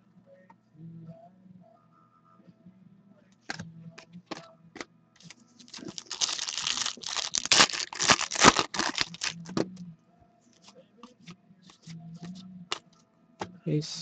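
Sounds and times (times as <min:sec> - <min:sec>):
foil wrapper tearing and crinkling: 0:05.7 - 0:09.5.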